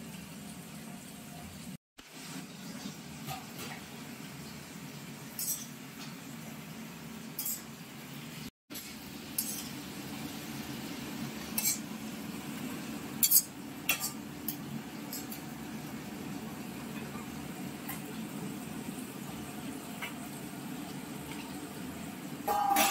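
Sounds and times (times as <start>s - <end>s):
metal utensils clinking on pots: 5.4s - 5.8s, 7.4s - 7.7s, 9.4s - 9.7s, 11.5s - 11.9s, 13.2s - 15.5s, 22.4s - 22.9s.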